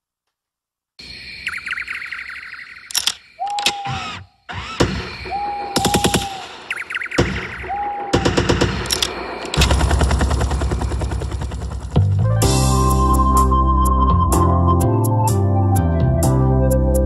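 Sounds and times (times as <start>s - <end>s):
short whistling tones: 1.4s - 4.4s, 5.1s - 8.3s
automatic gunfire bursts: 3.9s - 11.9s.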